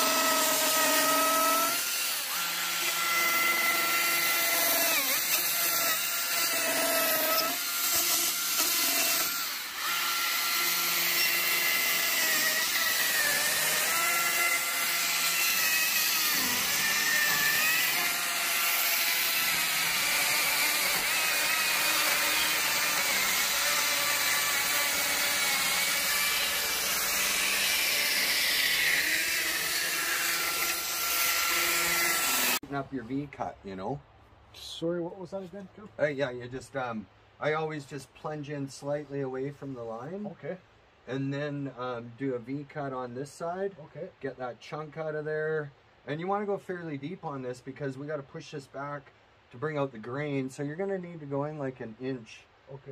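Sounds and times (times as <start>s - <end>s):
chainsaw cutting wood: 0.0s - 32.6s.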